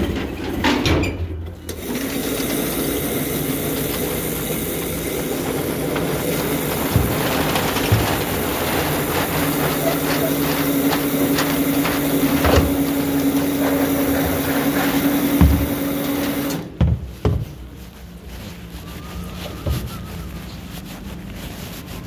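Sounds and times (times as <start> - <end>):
mechanical hum: 0.0 - 22.0
knocks: 14.0 - 15.9.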